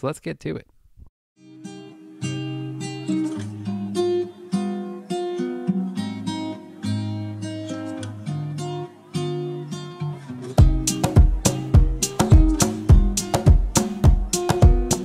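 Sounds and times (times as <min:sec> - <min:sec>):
acoustic guitar strumming: 0:01.4 - 0:15.0
loud sharp beats: 0:10.6 - 0:15.0.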